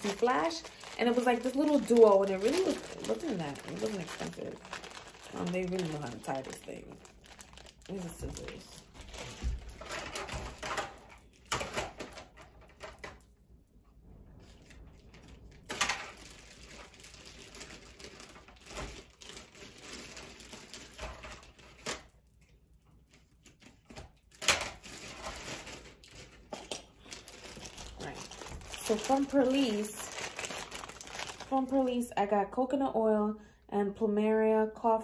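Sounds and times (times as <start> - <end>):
person moving about rummaging: 7.8 - 13.2.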